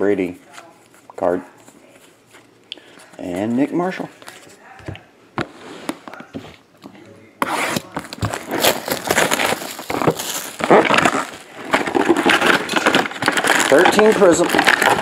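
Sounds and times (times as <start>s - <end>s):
shrink wrap tearing and crackling: 7.4s - 15.0s.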